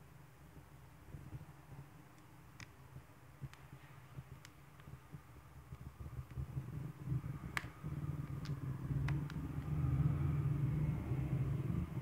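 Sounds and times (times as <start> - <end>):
low steady rumble: 0.0 - 12.0
plastic band clicks: 2.1 - 5.0, 7.4 - 9.8.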